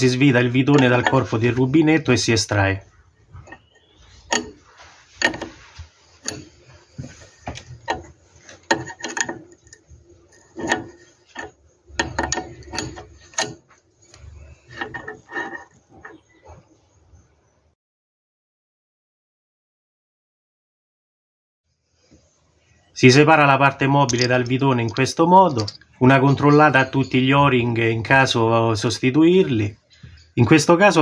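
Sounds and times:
spanner clicking and scraping metal: 0.0s - 1.8s, 3.2s - 16.6s, 24.0s - 26.0s.

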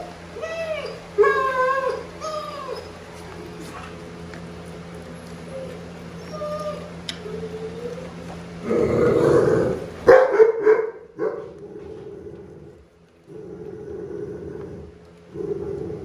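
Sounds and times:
dog growling: 5.5s - 10.0s, 11.4s - 16.0s
dog barking: 10.1s - 11.6s.

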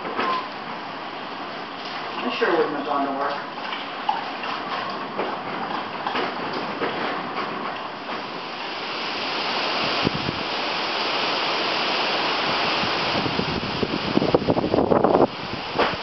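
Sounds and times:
strong wind gusting through trees: 7.9s - 16.0s
wind buffeting microphone: 8.8s - 16.0s.

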